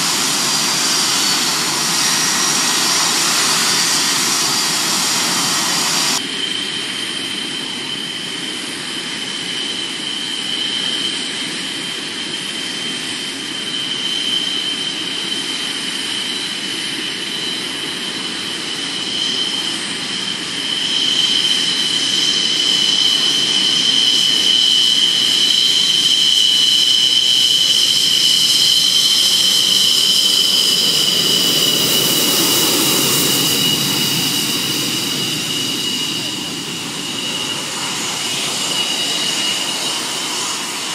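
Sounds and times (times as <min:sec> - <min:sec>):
jet engines whining: 0:00.0 - 0:40.9.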